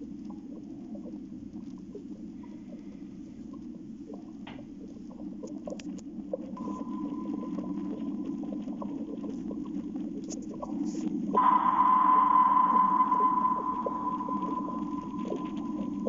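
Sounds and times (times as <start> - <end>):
small irregular ticks and pattering: 0.0 - 11.4
thin steady whine: 6.6 - 16.0.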